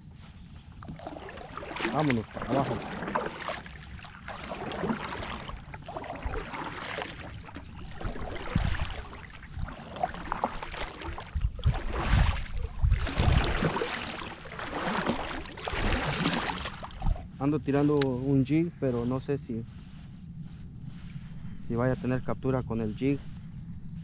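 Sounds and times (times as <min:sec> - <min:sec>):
wind rumble on microphone: 0:00.0 - 0:24.0
kayak paddle splashing in water: 0:00.8 - 0:17.2.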